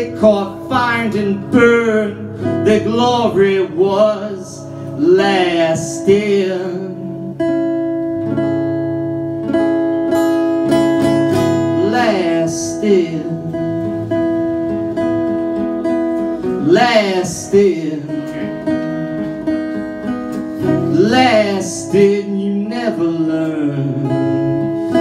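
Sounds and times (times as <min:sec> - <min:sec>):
man singing: 0:00.0 - 0:07.6, 0:11.4 - 0:14.2, 0:15.8 - 0:19.3, 0:20.6 - 0:25.0
acoustic guitar strummed: 0:00.0 - 0:25.0.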